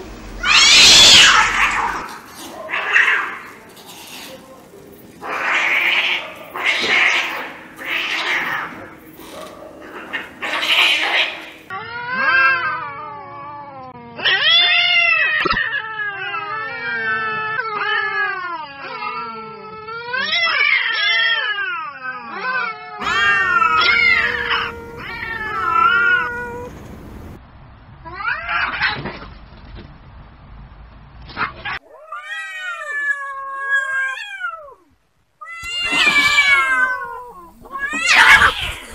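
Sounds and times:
cats hissing: 0.0s - 11.7s, 23.0s - 27.4s, 35.5s - 38.9s
cats yowling: 0.2s - 4.3s, 5.2s - 27.4s, 31.5s - 38.9s.

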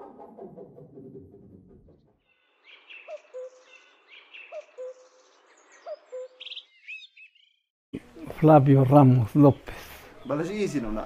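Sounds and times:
birds chirping: 2.2s - 11.0s
bird rapid trill: 2.3s - 7.6s.

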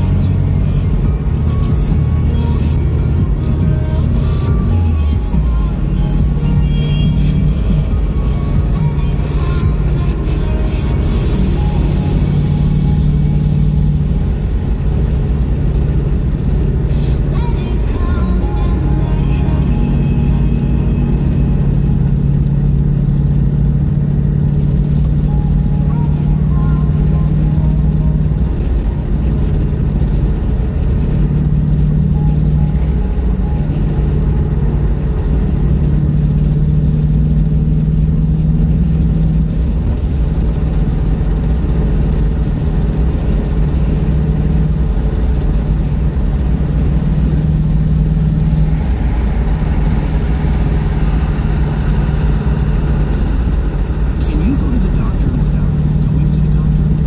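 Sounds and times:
car engine and road hum: 0.0s - 57.0s.

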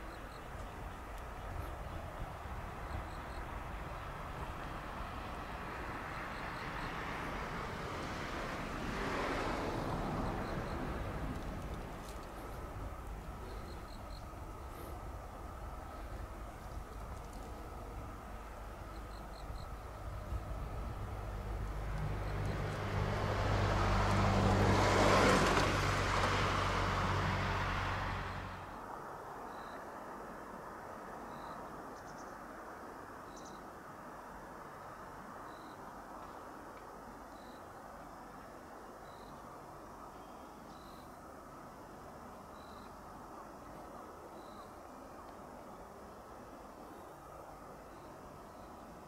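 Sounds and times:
vehicle passing by: 4.3s - 16.7s, 17.7s - 28.8s.

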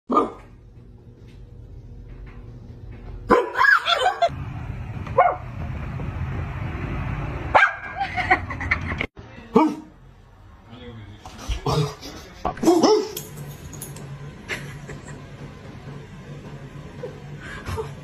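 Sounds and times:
dog barking: 3.3s - 3.7s, 7.5s - 7.9s, 9.5s - 9.9s, 12.6s - 13.2s.

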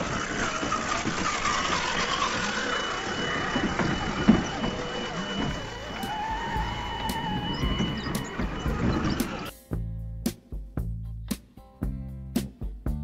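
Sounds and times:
toy truck motors whining: 0.0s - 9.5s.

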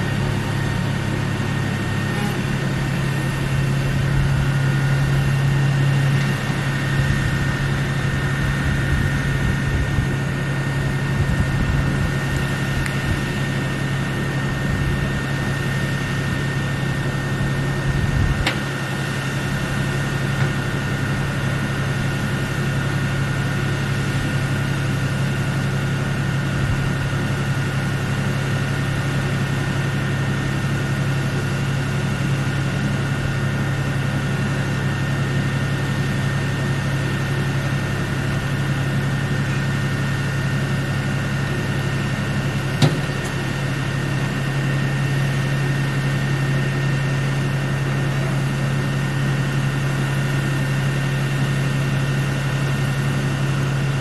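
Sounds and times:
low mechanical drone: 0.0s - 54.0s.

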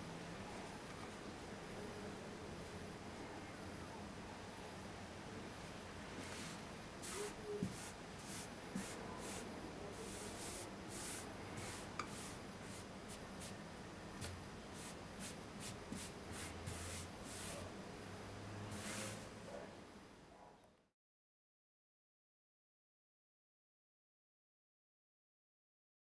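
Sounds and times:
short hissing rustles: 6.2s - 13.5s.

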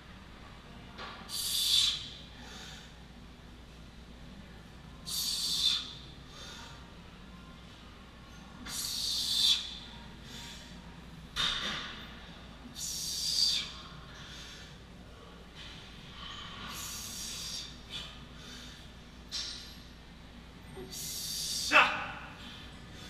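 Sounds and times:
man breathing hard: 1.3s - 3.0s, 16.1s - 19.0s.

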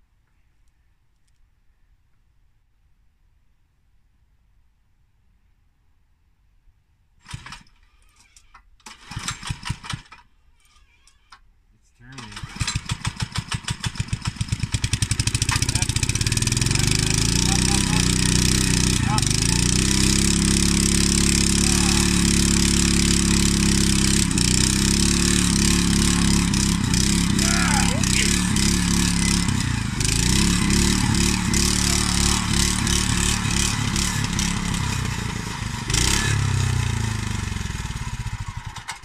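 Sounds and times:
earth auger engine running: 7.2s - 8.0s, 12.2s - 39.0s.

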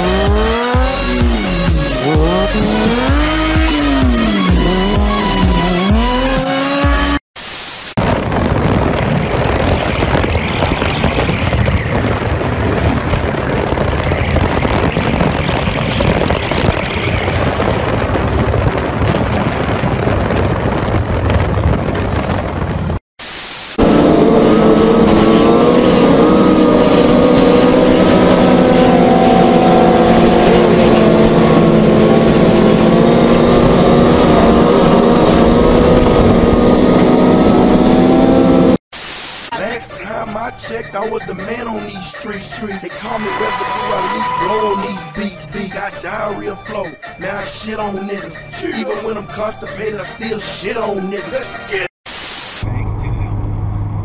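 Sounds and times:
motorcycle engine: 0.0s - 7.2s, 23.8s - 38.8s
wind rush: 8.0s - 23.0s, 23.8s - 38.6s.

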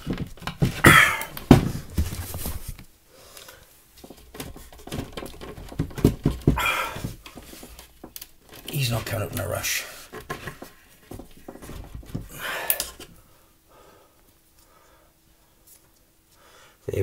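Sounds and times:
man panting and straining: 0.0s - 1.9s, 6.4s - 7.8s, 11.9s - 15.2s.

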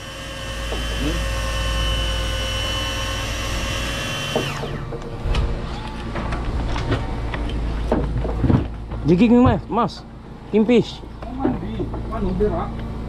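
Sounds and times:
small electric motor whining: 0.0s - 5.0s.

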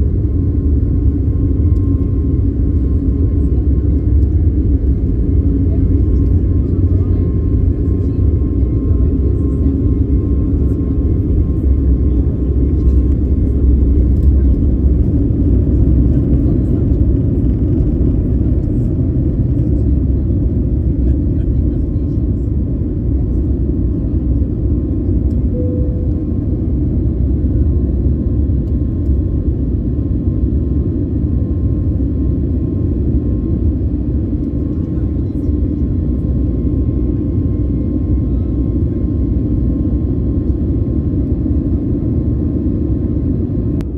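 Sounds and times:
deep rumble of engines and wheels: 0.0s - 43.9s
faint steady whine: 19.6s - 29.3s.

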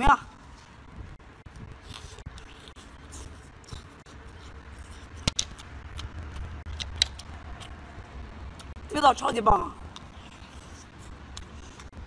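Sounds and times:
chewing and mouth noises: 1.4s - 8.8s, 9.8s - 12.0s.

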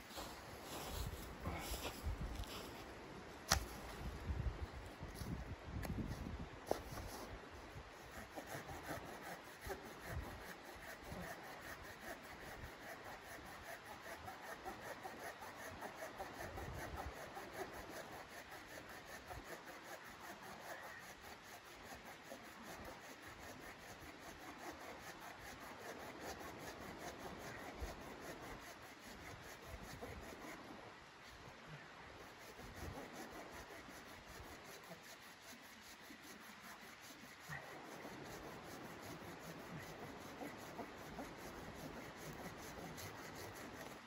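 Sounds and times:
hand saw rasping through wood: 7.9s - 30.7s, 32.2s - 44.0s.

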